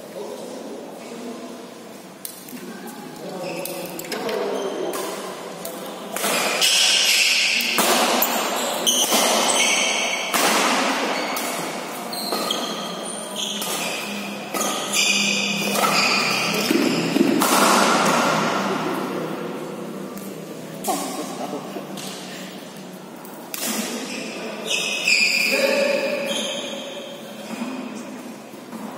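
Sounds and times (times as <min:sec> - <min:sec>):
shoes squeaking on court: 0:03.3 - 0:05.1, 0:06.6 - 0:10.3, 0:11.0 - 0:17.4, 0:23.9 - 0:27.6
rackets hitting shuttlecock: 0:03.7 - 0:18.6, 0:23.2 - 0:24.2.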